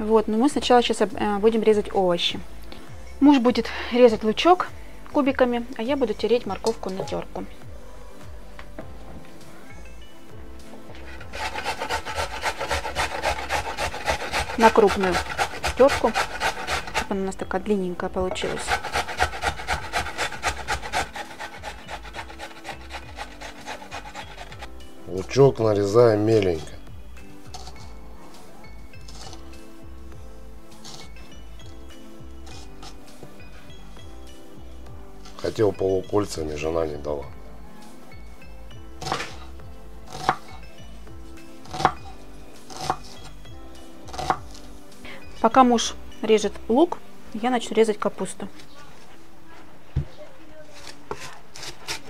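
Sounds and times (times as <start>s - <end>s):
soft background music: 0.0s - 52.0s
carrot grating on metal grater: 11.0s - 17.2s, 18.4s - 24.7s, 40.1s - 40.4s, 42.7s - 43.1s, 50.8s - 52.0s
knife chopping on wooden board: 11.1s - 17.1s, 18.4s - 24.7s, 39.0s - 39.4s, 40.1s - 40.5s, 41.6s - 42.0s, 42.7s - 43.2s, 44.1s - 44.5s.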